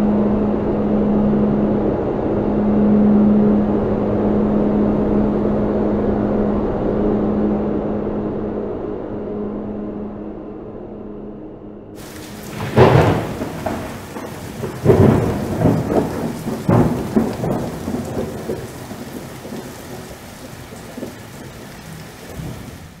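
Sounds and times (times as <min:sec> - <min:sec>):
steady rain: 0:12.0 - 0:23.0
thunder rumbling: 0:12.0 - 0:23.0.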